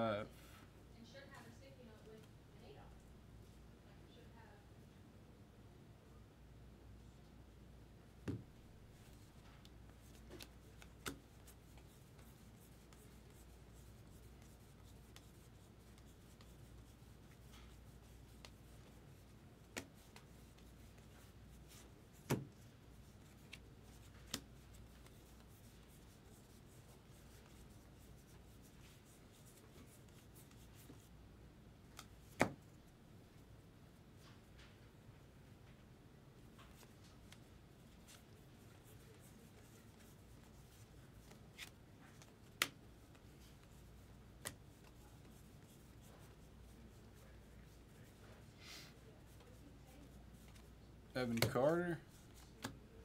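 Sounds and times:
cards rubbing and shuffling: 9.0s - 31.1s, 36.6s - 48.3s, 49.2s - 52.8s
cards tapping and clicking: 9.6s - 12.3s, 21.7s - 22.5s, 23.3s - 25.5s, 31.9s - 32.6s, 41.2s - 42.8s, 44.4s - 45.0s, 51.3s - 51.6s, 52.4s - 52.8s.

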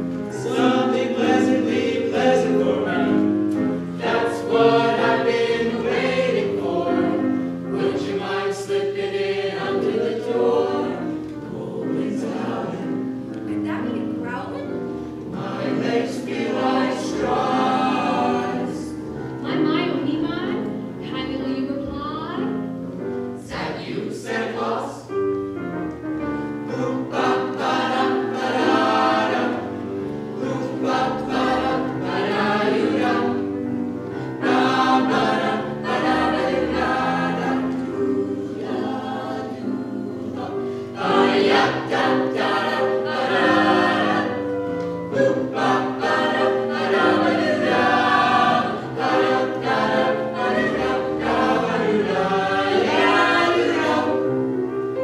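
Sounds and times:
vocal ensemble singing in harmony: 0.0s - 13.6s, 14.2s - 21.3s, 23.3s - 55.0s.

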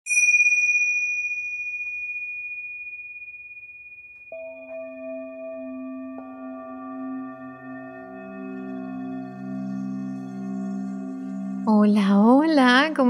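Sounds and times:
high singing bowl tone: 0.1s - 13.0s
lower singing bowl notes: 4.1s - 13.0s.

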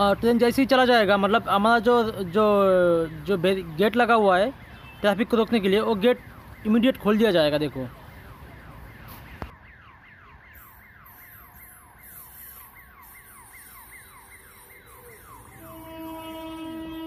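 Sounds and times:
electronic warning siren: 0.8s - 17.0s
train horn: 15.6s - 17.0s.

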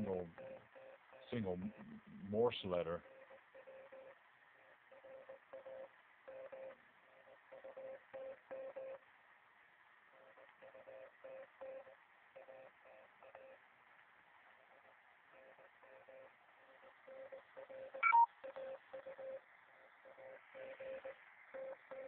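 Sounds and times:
radio band hiss: 1.3s - 3.0s
morse code tone: 18.0s - 18.3s.

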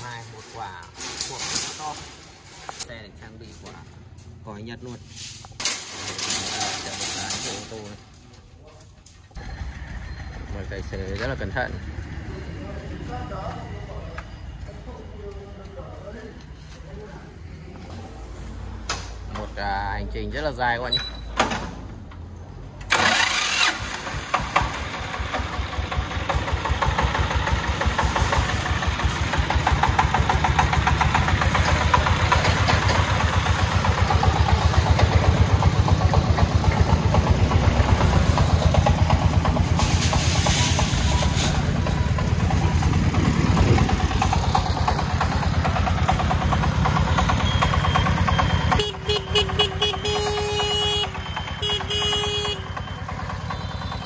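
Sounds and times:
diesel engine chugging: 9.4s - 14.7s, 22.9s - 54.0s
horn toots: 48.4s - 52.9s.

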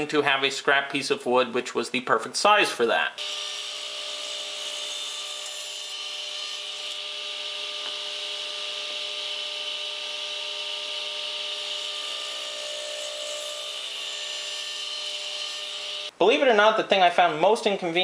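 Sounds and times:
radial arm saw cutting wood: 3.2s - 16.1s.

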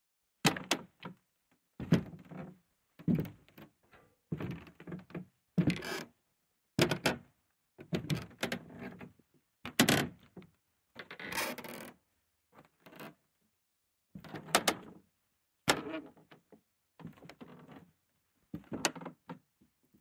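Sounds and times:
wooden floorboards creaking: 1.8s - 3.7s, 4.3s - 6.1s.

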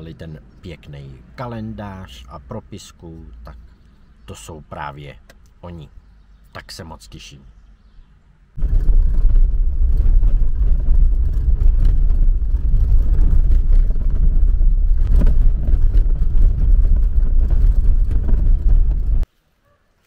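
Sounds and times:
car driving low rumble: 8.6s - 19.3s.

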